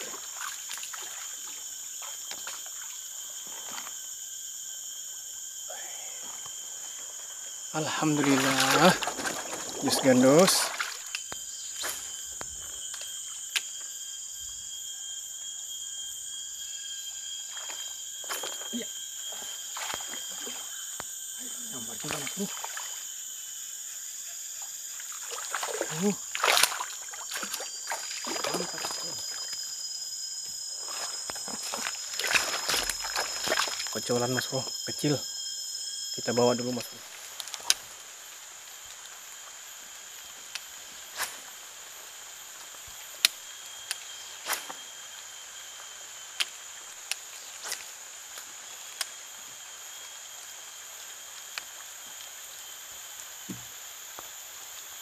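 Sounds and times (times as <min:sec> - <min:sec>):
forest insects droning: 0:00.0 - 0:55.0
water splashing and trickling: 0:08.0 - 0:11.2, 0:24.9 - 0:29.6, 0:30.8 - 0:34.0.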